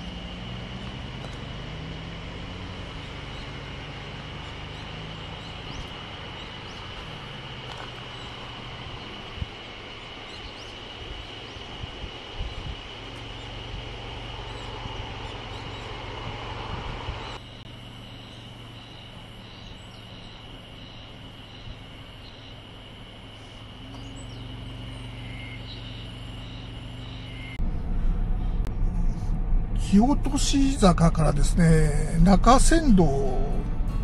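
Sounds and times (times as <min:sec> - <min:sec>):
low rumble: 0:05.5 - 0:17.7, 0:25.8 - 0:34.0.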